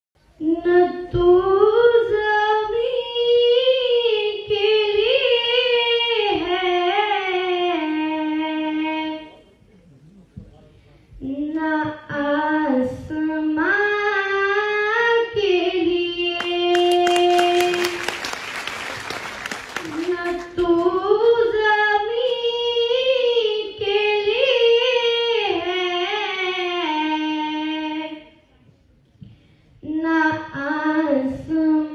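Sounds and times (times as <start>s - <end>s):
person singing unaccompanied: 11.2s - 18.0s
high voice singing unaccompanied: 11.2s - 18.1s, 19.8s - 28.2s.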